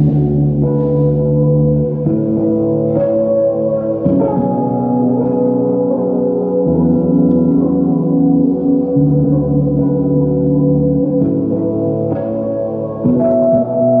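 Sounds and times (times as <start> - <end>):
electric bass ringing notes: 0.0 - 14.0
low bass drone: 0.0 - 14.0.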